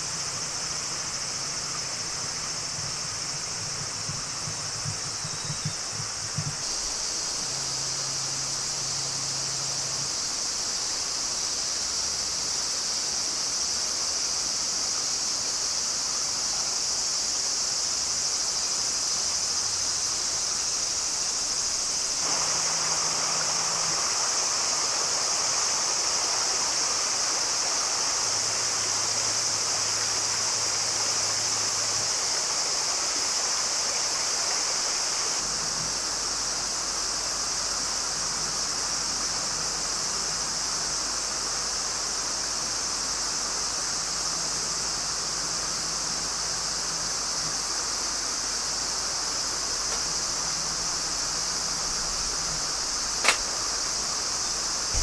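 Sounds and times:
crickets chirping: 0.0s - 55.0s
low hiss: 0.0s - 55.0s.

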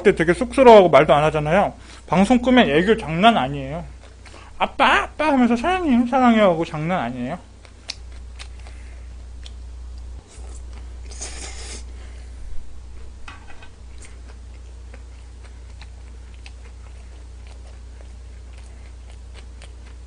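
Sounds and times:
steady low hum: 0.0s - 20.0s
wet chewing: 7.5s - 11.9s, 13.9s - 20.0s
person slurping noodles: 10.3s - 11.9s.

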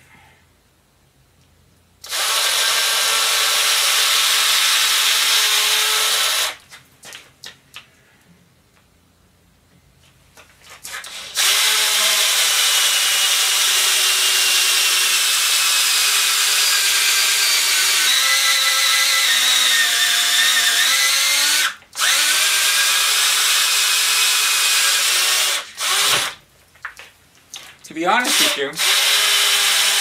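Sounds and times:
cordless drill boring into wood: 2.0s - 6.6s, 10.9s - 26.4s, 28.2s - 30.0s.

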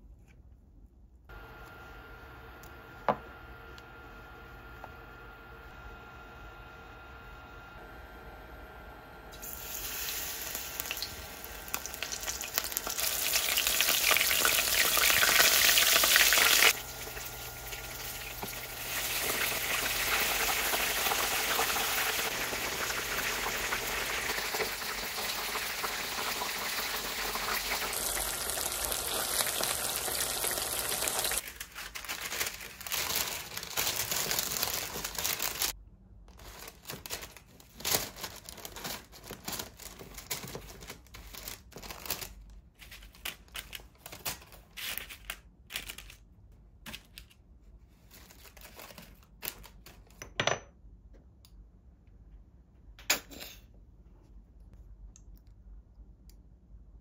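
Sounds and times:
shrimp sizzling in hot oil: 9.4s - 31.4s.

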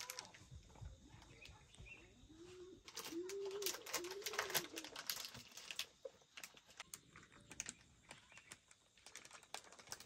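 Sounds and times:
plastic bag crinkling: 0.0s - 0.4s, 2.8s - 10.0s
dry twigs clicking: 2.9s - 10.0s.

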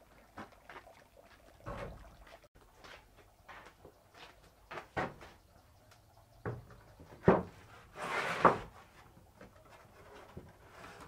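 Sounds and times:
board sliding across slats: 7.2s - 9.1s, 9.9s - 11.0s.

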